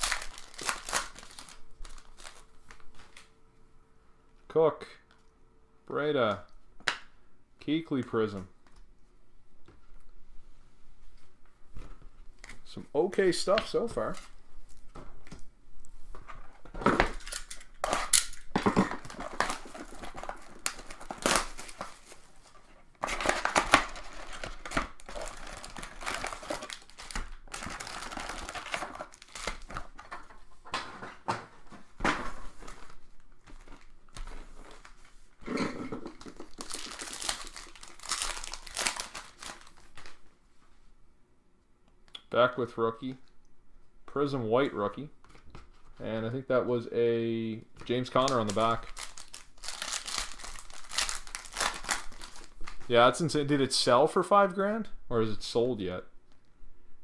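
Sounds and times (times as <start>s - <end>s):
card pack wrappers crinkling and tearing: 0.0s - 3.3s, 16.9s - 30.9s, 32.5s - 35.1s, 36.0s - 40.2s, 47.9s - 53.6s.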